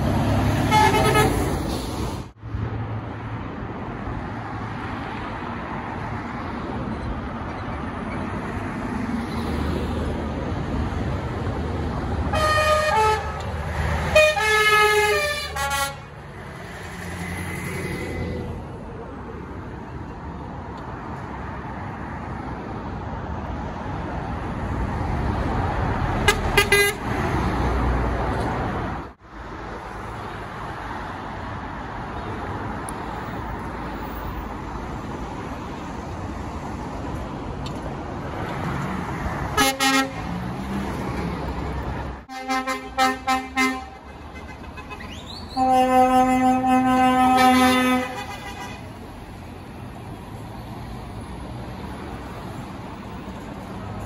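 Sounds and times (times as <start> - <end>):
truck horns: 0.0 - 1.7, 12.2 - 16.3, 26.2 - 27.3, 39.5 - 40.4, 42.2 - 49.1
passing engines and tyres: 0.0 - 54.0.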